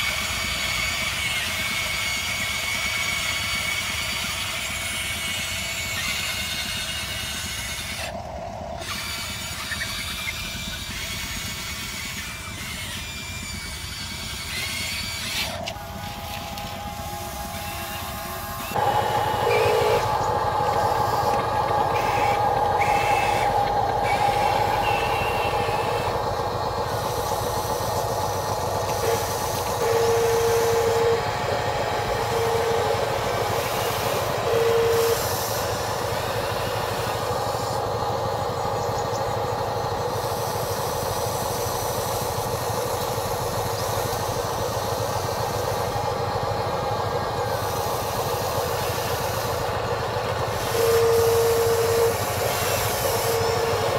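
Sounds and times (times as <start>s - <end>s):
small electric motors whirring: 0.0s - 53.9s
short steady tones: 14.4s - 53.9s.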